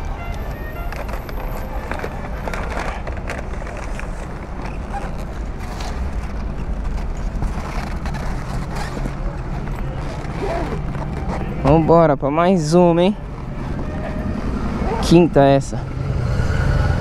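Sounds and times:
paper bags rustling: 0.5 - 11.8.

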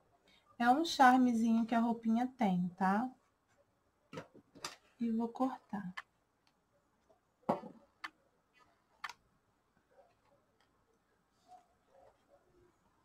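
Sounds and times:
faint handling sounds: 5.7 - 13.0.

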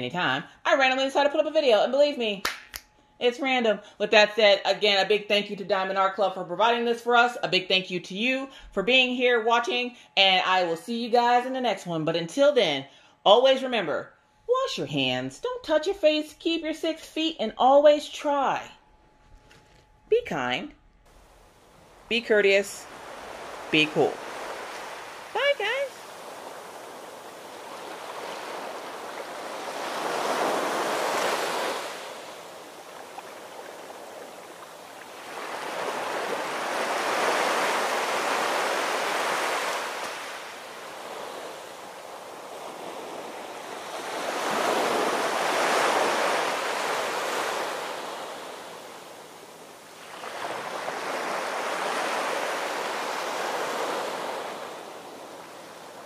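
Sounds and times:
ocean waves breaking: 21.1 - 56.0.

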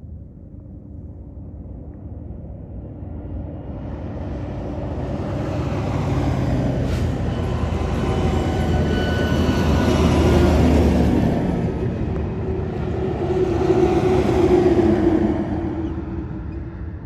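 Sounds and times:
jet engines deep rumble: 0.0 - 17.0
heavy trucks driving past: 3.5 - 17.0.

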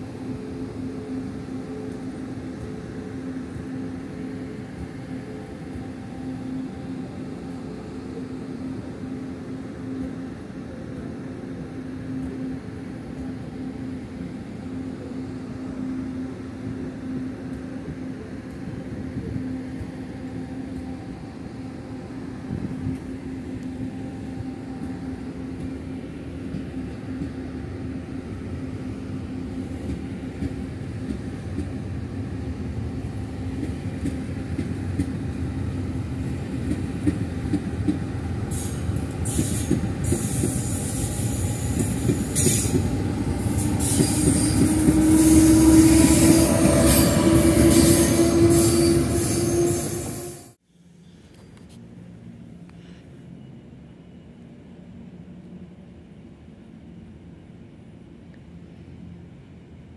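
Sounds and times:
train wheels rumbling: 15.0 - 50.6
high-pitched wheel squeal: 43.7 - 50.5.

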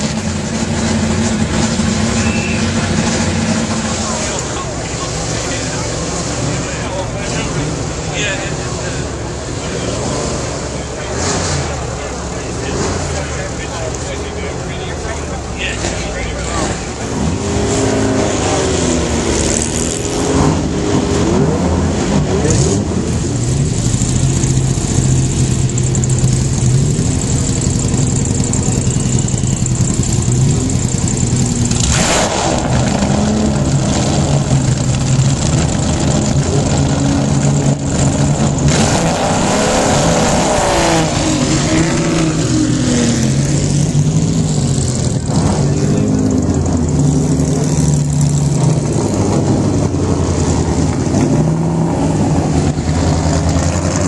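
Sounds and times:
engine throttle blips: 0.0 - 54.0
racing car engines idling: 0.0 - 54.0.

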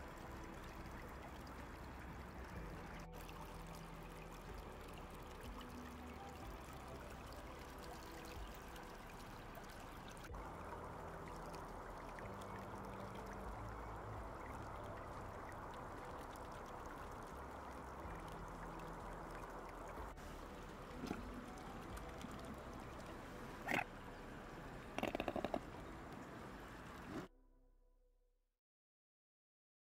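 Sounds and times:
stream flowing: 0.0 - 27.3
swans calling: 20.2 - 25.9.

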